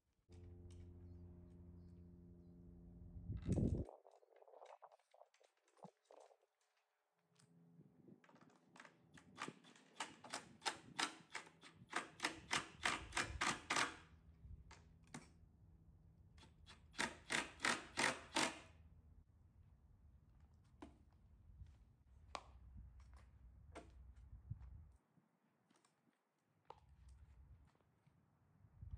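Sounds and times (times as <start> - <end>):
sharp clacks of drill clutch: 9.1 - 14.1, 16.4 - 18.7.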